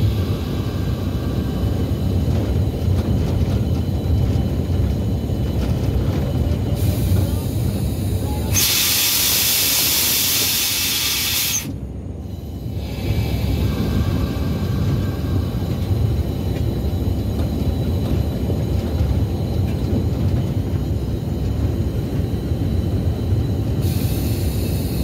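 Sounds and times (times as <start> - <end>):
train rolling with low rumble: 0.0 - 25.0
loud hiss of escaping air: 6.8 - 11.8, 23.8 - 25.0.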